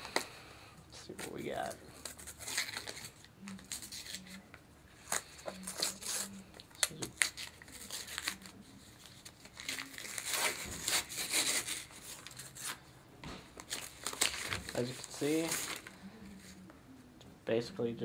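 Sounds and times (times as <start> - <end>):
paper rustling and crinkling: 1.1 - 4.4, 5.0 - 12.8, 13.5 - 16.6
wrapping paper tearing: 1.2 - 4.4, 5.0 - 12.8, 13.6 - 16.0.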